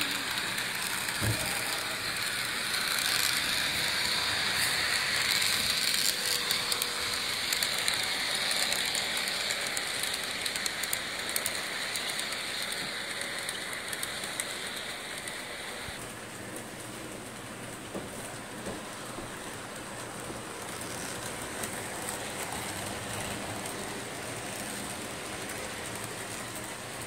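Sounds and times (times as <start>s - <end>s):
wheels clicking over rail joints: 0.0s - 15.6s
model train wheels and motor hiss: 0.0s - 27.0s.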